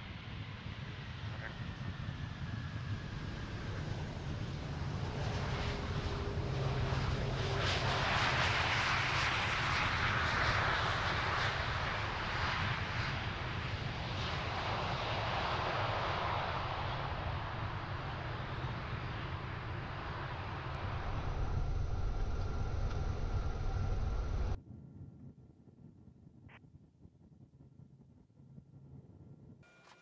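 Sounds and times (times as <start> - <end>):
jet engines and rushing air: 0.0 - 24.6
low rumble: 15.6 - 29.6.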